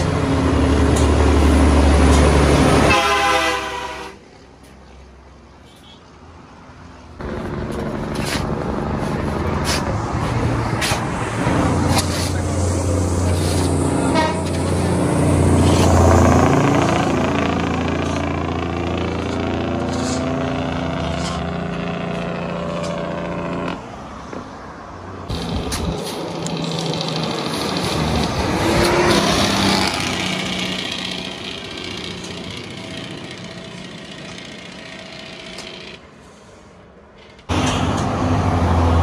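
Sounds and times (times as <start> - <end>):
diesel truck engine labouring: 7.2 - 23.9, 25.2 - 36.1, 37.5 - 39.0.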